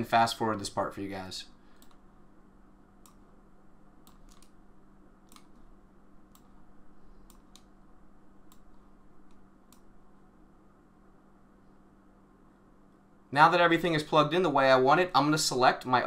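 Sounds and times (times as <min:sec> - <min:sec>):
low electrical hum: 0:00.0 - 0:16.0
computer mouse clicks: 0:01.7 - 0:02.1, 0:03.0 - 0:03.3, 0:04.0 - 0:04.6, 0:05.2 - 0:05.7, 0:06.3 - 0:06.6, 0:07.2 - 0:07.8, 0:08.4 - 0:09.9.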